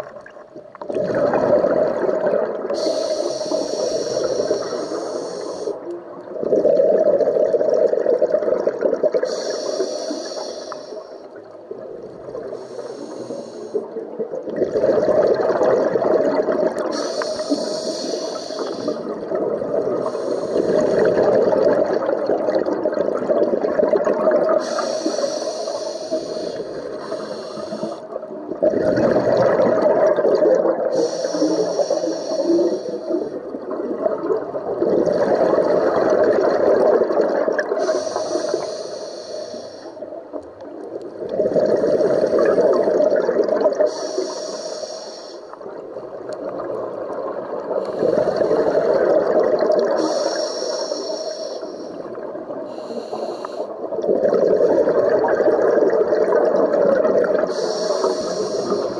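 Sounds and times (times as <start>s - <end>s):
exhaled bubbles rushing underwater: 0.0s - 44.5s, 45.5s - 58.9s
regulator hissing inhalations: 2.8s - 5.9s, 9.2s - 11.3s, 12.4s - 13.9s, 16.9s - 19.2s, 20.0s - 21.1s, 24.6s - 28.2s, 30.9s - 33.4s, 37.8s - 40.0s, 43.8s - 45.6s, 47.8s - 49.0s, 50.0s - 52.1s, 52.7s - 53.8s, 57.4s - 58.9s.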